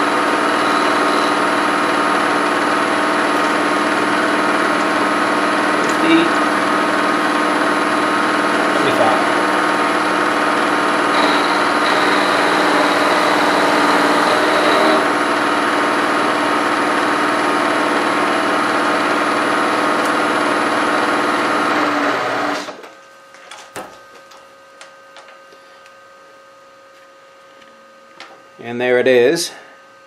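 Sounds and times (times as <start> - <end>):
milling machine cutting steel: 0.0 - 6.4, 8.6 - 15.7.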